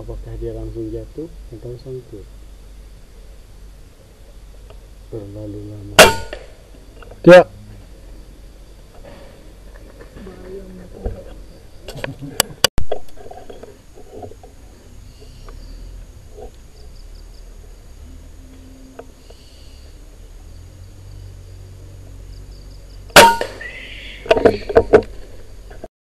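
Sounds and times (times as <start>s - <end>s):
air rifle shot: 6.0s - 6.6s, 23.2s - 23.8s.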